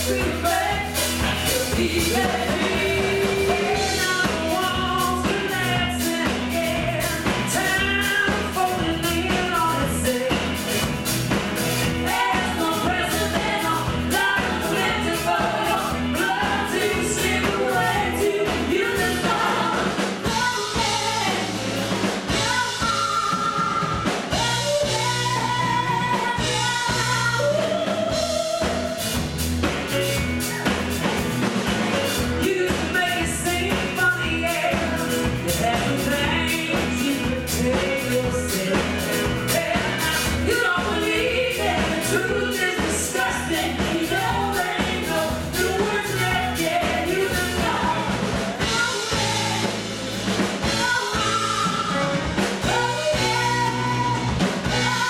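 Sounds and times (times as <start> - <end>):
man and woman singing: 0.0 - 10.9, 11.6 - 29.1, 32.2 - 50.0, 50.6 - 55.0
drum kit beat: 0.0 - 55.0
electric guitar: 0.0 - 55.0.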